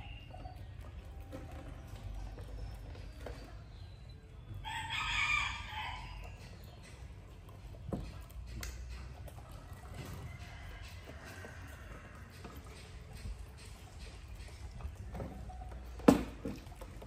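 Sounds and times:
rooster crowing: 0:04.6 - 0:06.2.

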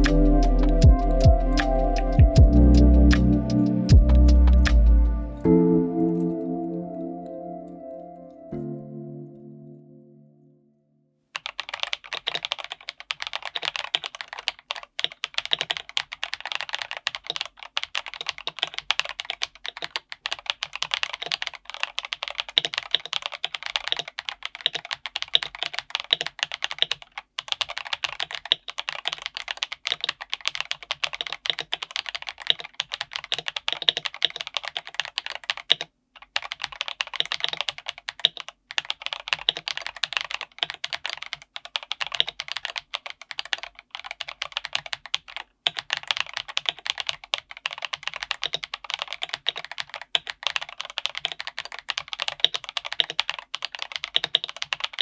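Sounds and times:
typing on mechanical keyboard: 0:11.4 - 0:55.0.

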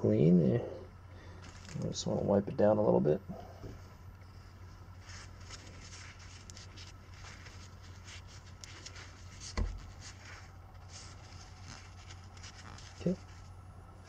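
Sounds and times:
paper towel rustling on metal: 0:03.8 - 0:14.0
dull thump: 0:09.5 - 0:09.9.

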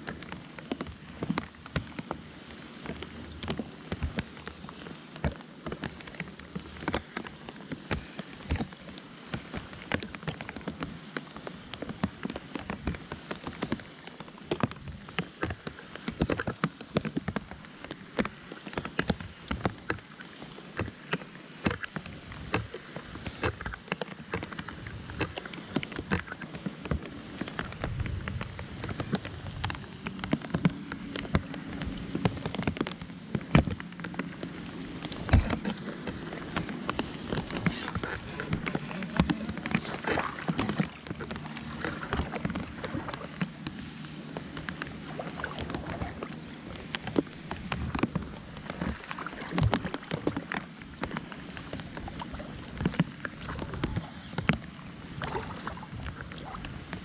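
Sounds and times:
raindrops ticking: 0:00.0 - 0:02.2, 0:02.8 - 0:20.2, 0:20.8 - 0:56.2.

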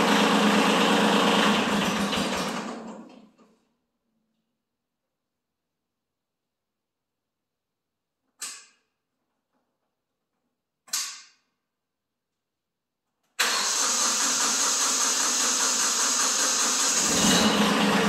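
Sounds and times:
tractor diesel engine running: 0:00.0 - 0:02.6, 0:13.4 - 0:18.0.

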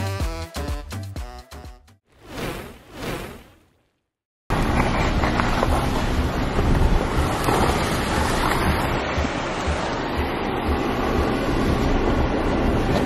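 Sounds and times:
car driving on rough road: 0:04.5 - 0:13.0.

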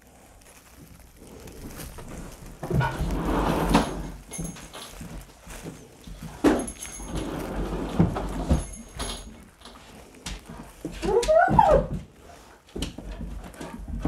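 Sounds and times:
plastic bag and soil rustling: 0:00.0 - 0:11.2, 0:12.0 - 0:14.0
dog whining: 0:11.0 - 0:12.0.

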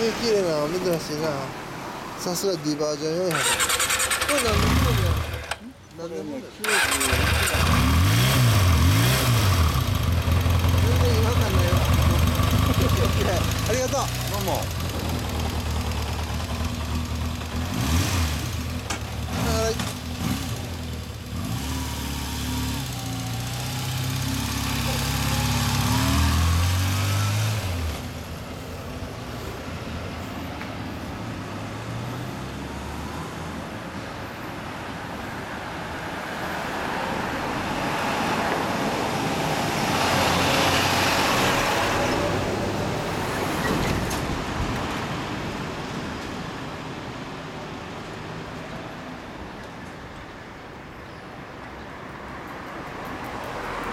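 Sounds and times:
street traffic noise: 0:00.0 - 0:53.9
motorcycle engine pulling away: 0:03.3 - 0:05.6, 0:06.6 - 0:28.2.

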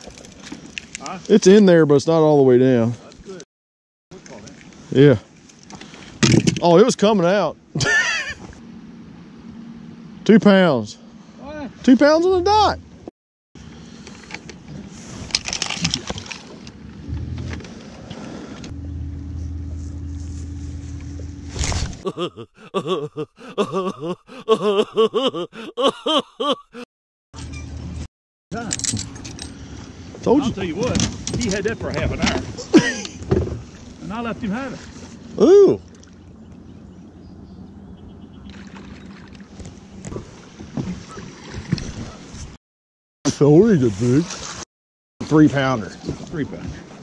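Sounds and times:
boat motor humming: 0:07.7 - 0:13.0, 0:16.6 - 0:23.0, 0:29.1 - 0:41.8
steady low hum: 0:16.8 - 0:22.0.

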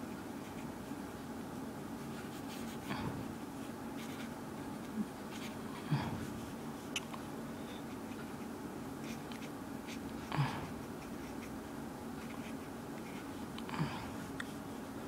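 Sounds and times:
steady low hum: 0:00.0 - 0:15.0
marker pen scratching paper: 0:04.0 - 0:04.3, 0:10.7 - 0:11.6, 0:12.2 - 0:13.3.

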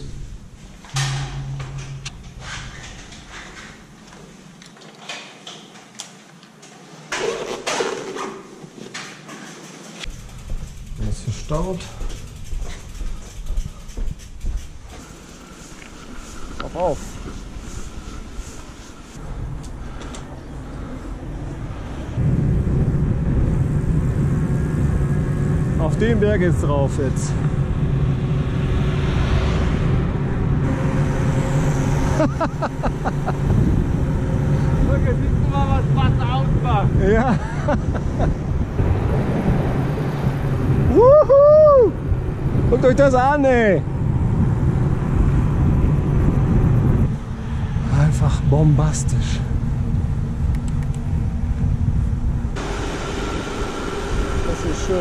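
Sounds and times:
rumble of vehicle motion: 0:00.0 - 0:04.2, 0:10.0 - 0:55.0
low motor hum: 0:00.0 - 0:04.5, 0:10.1 - 0:42.7, 0:43.8 - 0:55.0
knocks and clatter of gear: 0:00.8 - 0:06.6, 0:07.2 - 0:15.2
scraping squeal: 0:12.2 - 0:19.2.

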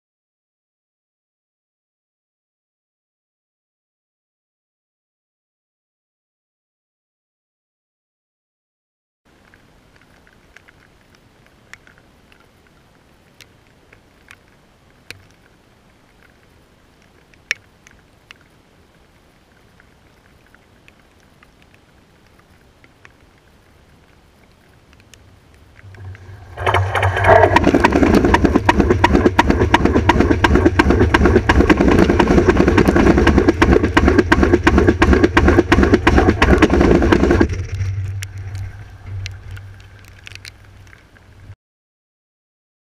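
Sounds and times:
faint ticks: 0:09.3 - 0:27.4, 0:38.0 - 0:41.5
wheels clattering on rails: 0:25.8 - 0:41.1
train passing with rushing rumble: 0:25.9 - 0:40.0.

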